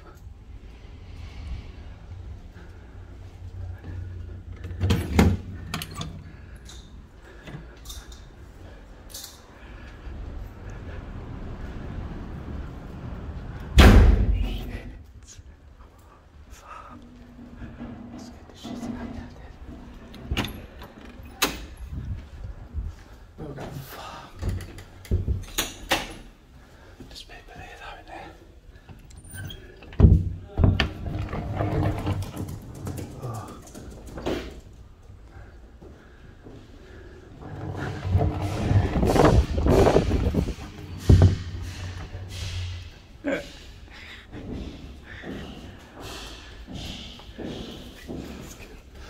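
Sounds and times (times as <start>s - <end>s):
low rumble: 0.0s - 4.7s, 9.6s - 20.1s, 36.8s - 44.7s
door clicks and creaks: 4.5s - 8.3s, 17.0s - 22.0s, 24.4s - 26.3s, 28.8s - 34.7s, 37.4s - 43.2s.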